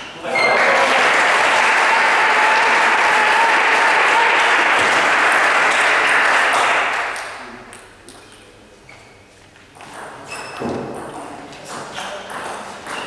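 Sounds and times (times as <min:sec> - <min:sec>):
crowd applause: 0:00.2 - 0:07.5.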